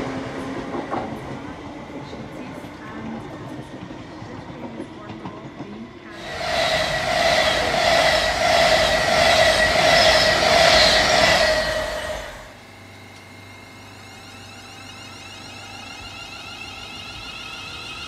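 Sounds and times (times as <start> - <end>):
wheels rushing on rail: 0.0 - 12.6
electric train passing at speed: 0.0 - 12.9
electric train low hum: 0.0 - 18.0.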